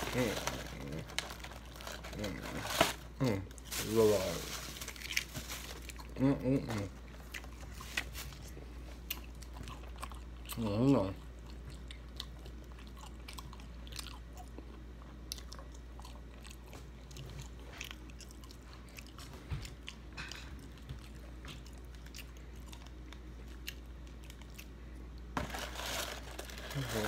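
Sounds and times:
packet crinkling: 0.0s - 6.0s, 25.4s - 27.0s
person chewing crunchy fried fish: 4.8s - 25.3s.

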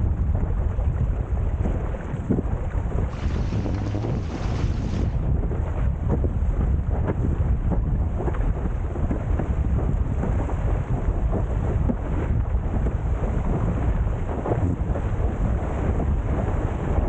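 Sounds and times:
wind buffeting microphone: 0.0s - 17.0s
water splashing and hissing: 3.1s - 5.2s.

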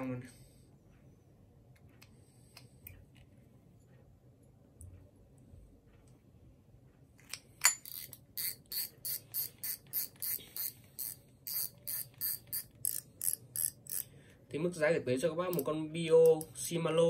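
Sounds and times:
fishing reel clicking: 7.8s - 14.1s.

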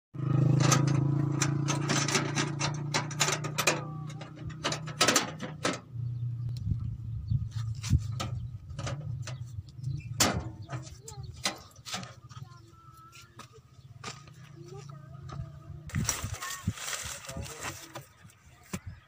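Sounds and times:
sharp clicks and knocks: 0.5s - 5.9s, 8.2s - 12.3s.

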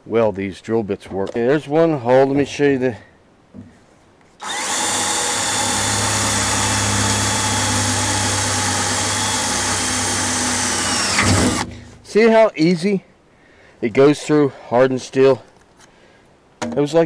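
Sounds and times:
drill drilling through steel: 4.4s - 11.7s.

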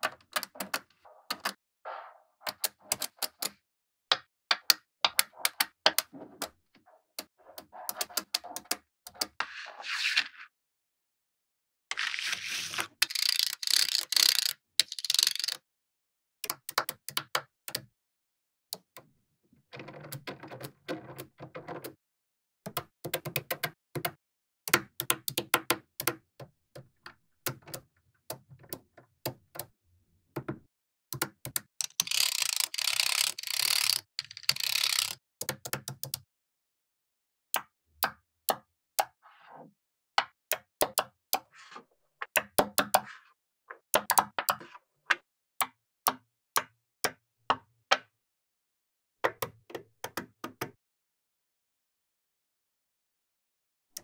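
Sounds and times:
magnetic balls clicking together: 13.0s - 15.6s, 31.2s - 36.2s.

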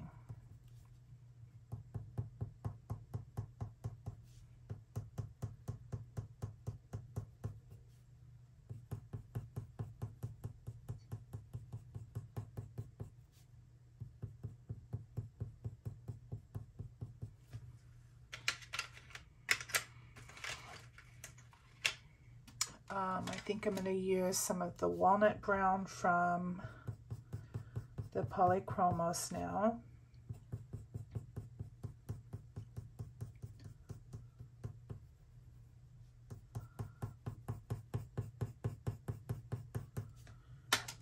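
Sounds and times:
pencil tapping on paper: 1.7s - 7.7s, 8.7s - 13.2s, 14.0s - 17.4s, 26.8s - 29.1s, 30.2s - 35.2s, 36.2s - 41.0s.

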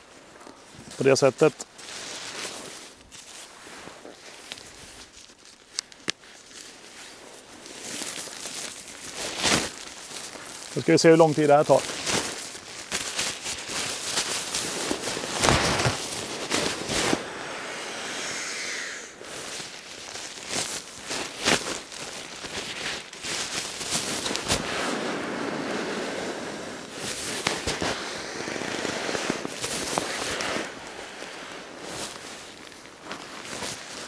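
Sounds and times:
nylon sack rustling and crinkling: 0.0s - 34.0s
air hissing: 14.7s - 19.7s.

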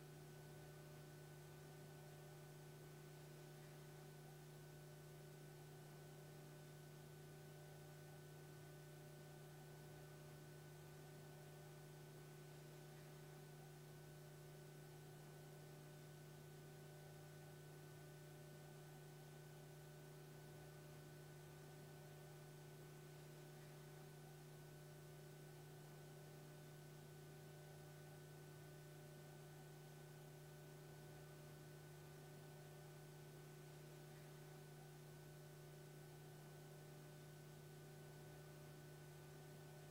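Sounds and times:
faint electrical hum: 0.0s - 39.9s.

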